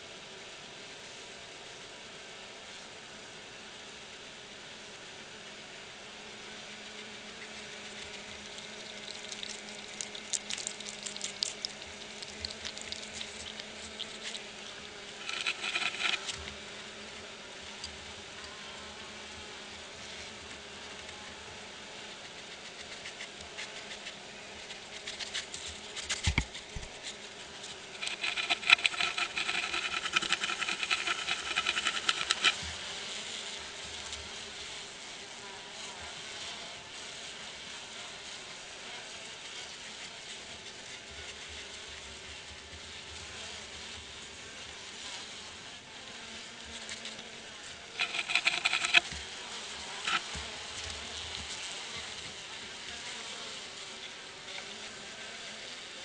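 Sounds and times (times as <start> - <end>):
honey bees buzzing: 4.6 - 39.7, 41.0 - 56.0
rapid scratching on wood: 6.8 - 16.7, 22.1 - 32.9, 46.7 - 53.4.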